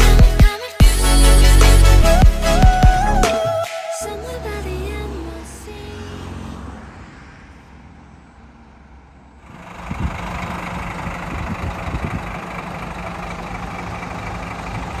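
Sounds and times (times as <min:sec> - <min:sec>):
diesel bus engine idling: 0:09.2 - 0:15.0.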